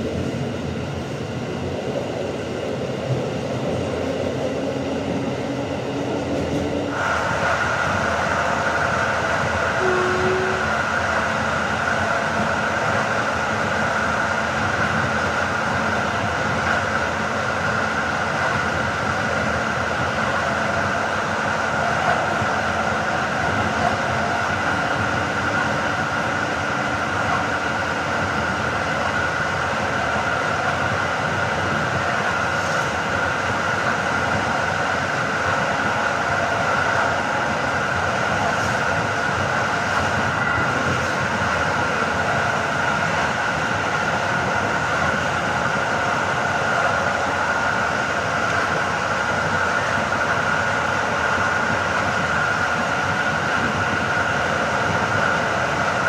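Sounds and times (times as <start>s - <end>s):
train wheels rumbling on rails: 0.0s - 56.0s
constant high tone: 9.8s - 10.8s.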